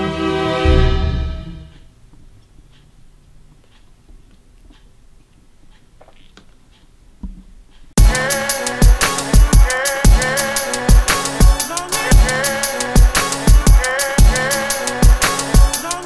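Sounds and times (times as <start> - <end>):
film score music: 0.0 - 1.9
loud drum-kit music: 8.0 - 16.0.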